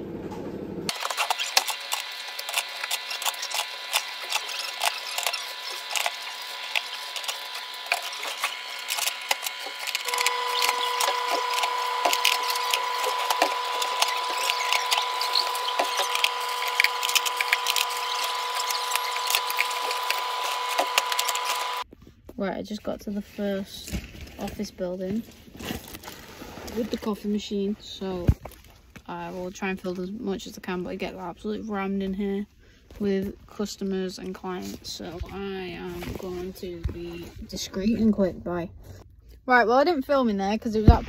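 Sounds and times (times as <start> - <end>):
vending machine hum: 0.0 - 22.7.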